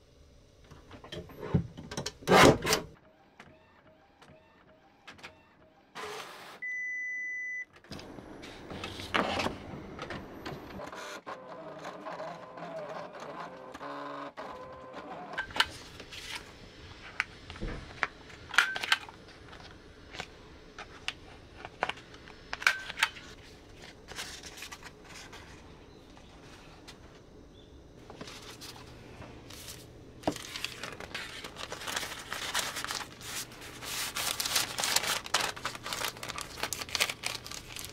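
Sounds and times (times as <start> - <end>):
cutting machine whirring and clicking: 7.9 - 15.7
paper sheets handled: 23.1 - 27.2, 28.0 - 37.9.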